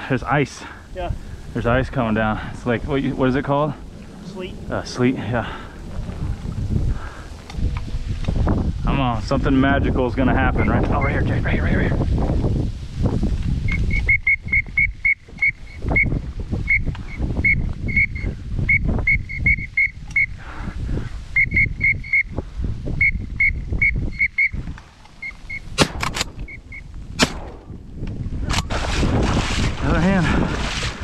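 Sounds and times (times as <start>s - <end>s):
wind rumbling on microphone: 0.0s - 31.0s
duck call whistle pips: 17.4s - 20.3s, 23.0s - 24.6s.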